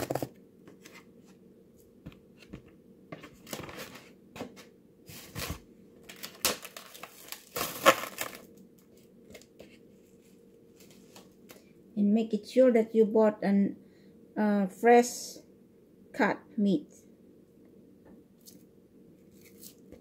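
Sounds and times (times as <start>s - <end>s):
plastic wrap crinkling: 5.2s - 9.5s.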